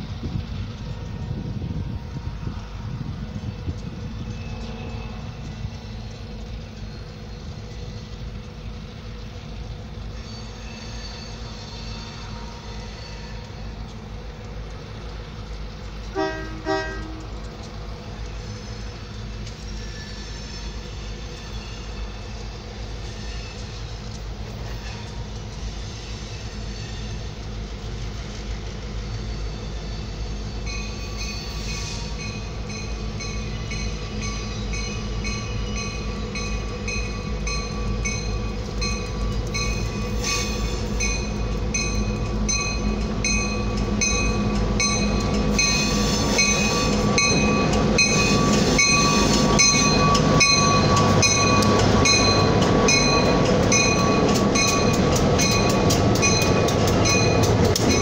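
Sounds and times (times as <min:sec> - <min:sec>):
diesel locomotive engine rumble: 0:00.0 - 0:58.0
train wheels clicking over rail joints: 0:00.0 - 0:58.0
locomotive bell ringing: 0:29.4 - 0:58.0.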